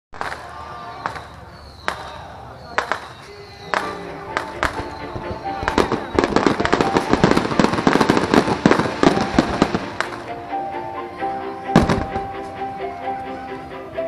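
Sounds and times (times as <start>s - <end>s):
fireworks bangs and crackles: 0.2s - 10.4s, 11.7s - 12.4s
music: 3.6s - 14.0s.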